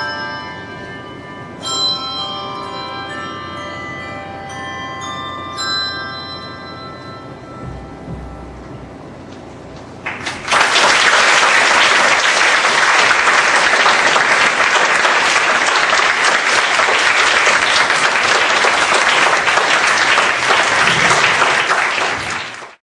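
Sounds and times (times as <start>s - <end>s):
audience applause: 10.0s - 22.8s.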